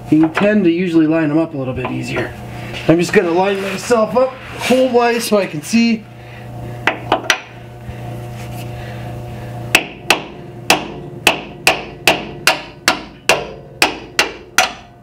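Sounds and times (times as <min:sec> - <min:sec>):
steady low hum: 0:00.0 - 0:15.0
hammer striking metal bolt: 0:09.8 - 0:14.9.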